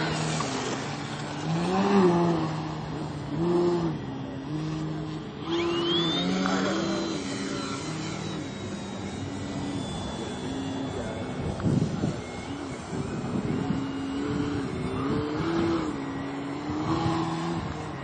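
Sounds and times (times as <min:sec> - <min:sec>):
model plane engine buzzing: 0:00.0 - 0:18.0
thin high whistle: 0:05.4 - 0:15.1.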